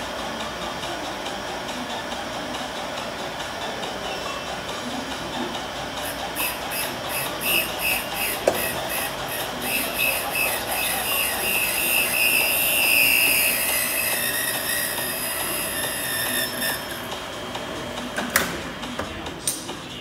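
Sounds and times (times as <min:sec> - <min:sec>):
grinding wheel squealing whine: 0:06.0 - 0:17.4.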